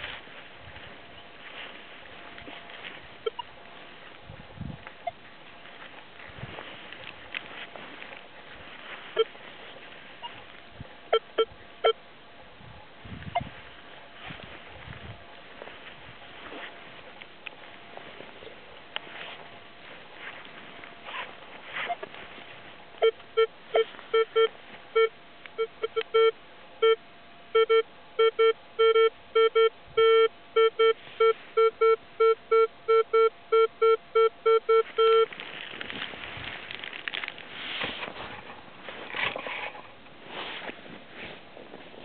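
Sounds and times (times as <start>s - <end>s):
rustling and handling noise: 0.0s - 11.8s, 13.0s - 26.1s, 30.8s - 32.3s, 34.7s - 42.0s
metal detector beeping: 2.4s - 3.6s, 9.1s - 9.4s, 10.2s - 10.5s, 11.1s - 12.0s, 21.1s - 22.1s, 23.0s - 35.4s.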